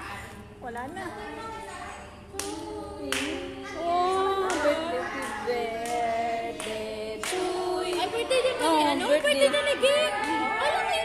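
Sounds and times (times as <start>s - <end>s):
voices singing together: 0.0s - 11.0s
hand claps: 2.3s - 3.5s, 4.1s - 8.4s.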